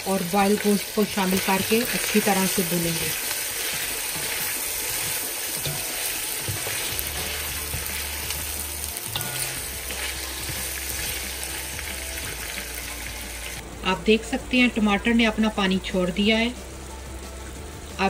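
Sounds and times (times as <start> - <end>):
meat sizzling in hot oil: 0.0 - 13.6
wooden spatula stirring in a pot: 0.3 - 12.9.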